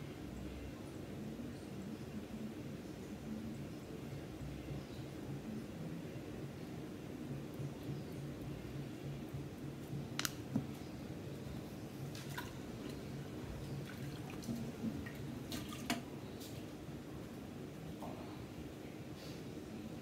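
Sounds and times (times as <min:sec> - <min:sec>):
steady low hum: 0:00.0 - 0:20.0
sharp clicks and taps: 0:10.2 - 0:10.7.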